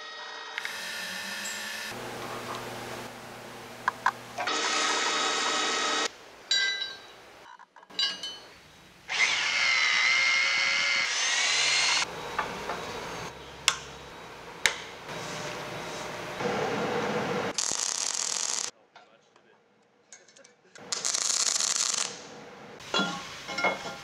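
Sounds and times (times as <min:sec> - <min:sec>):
power drill drilling into metal: 0:04.4 - 0:06.1.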